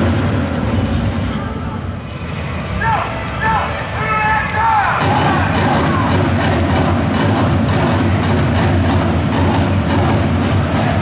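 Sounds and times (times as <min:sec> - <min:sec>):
steady drumbeat: 0:03.7 - 0:11.0.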